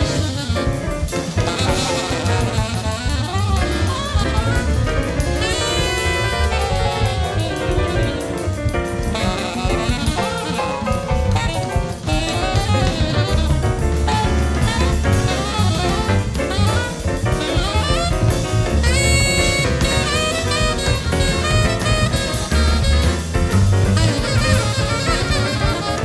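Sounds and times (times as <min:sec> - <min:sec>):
alto saxophone: 0:00.0 - 0:26.0
busy drumming: 0:00.0 - 0:26.0
free jazz quartet: 0:00.0 - 0:26.0.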